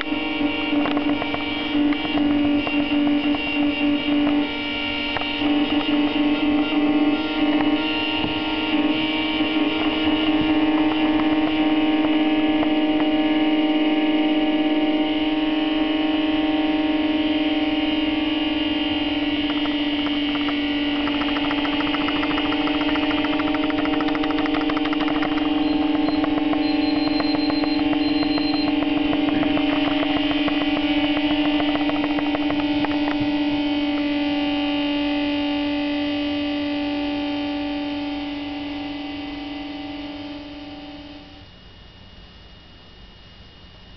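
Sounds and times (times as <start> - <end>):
fast flickering pulse: 0.0 - 41.4
electronic drone: 0.0 - 42.5.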